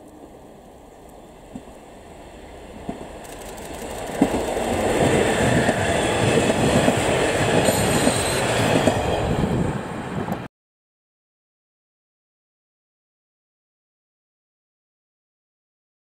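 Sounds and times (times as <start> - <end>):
train rumble: 0.0 - 10.5
wheels clicking over rail joints: 2.8 - 9.1.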